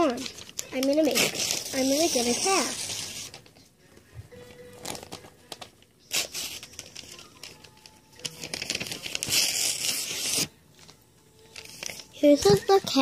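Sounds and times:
crinkly material tearing: 0.0 - 3.6, 4.8 - 13.0.

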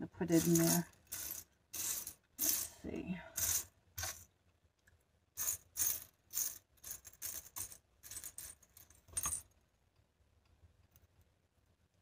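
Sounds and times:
shells clinking and rattling: 0.3 - 2.8, 3.4 - 4.3, 5.4 - 9.6.

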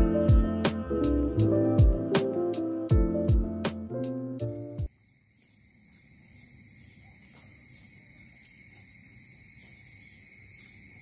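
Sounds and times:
crickets chirping: 4.5 - 11.0.

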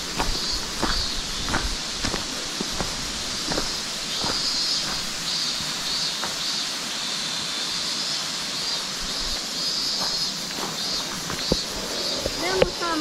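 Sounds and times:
footsteps on trail: 0.0 - 6.5, 9.0 - 12.8
high hiss: 0.0 - 13.0
river rushing: 0.0 - 13.0.

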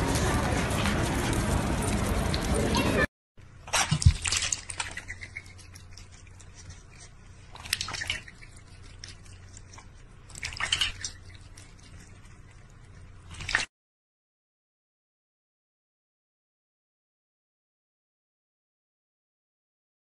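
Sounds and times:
water splashing in a metal bowl: 3.6 - 6.4, 7.5 - 12.2, 13.2 - 13.7.

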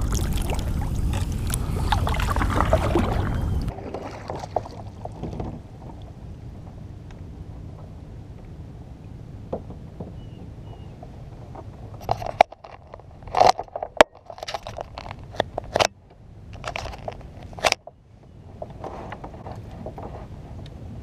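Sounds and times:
wind rumble on microphone: 0.0 - 21.0
gear knocks and clicks on kayak: 11.6 - 17.9.

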